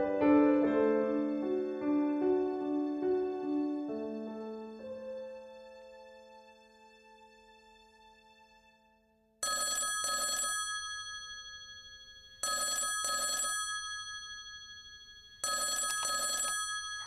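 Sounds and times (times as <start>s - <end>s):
piano music: 0.0s - 7.7s
telephone double ring: 9.4s - 17.0s.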